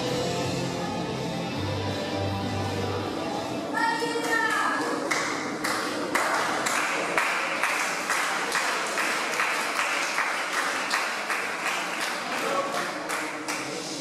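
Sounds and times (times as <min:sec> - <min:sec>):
crowd clapping in unison: 0:04.2 - 0:14.0.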